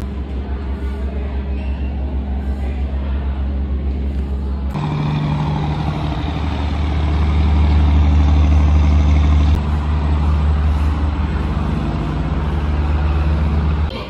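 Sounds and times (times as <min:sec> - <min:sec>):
heavy engine droning: 0:00.0 - 0:14.0.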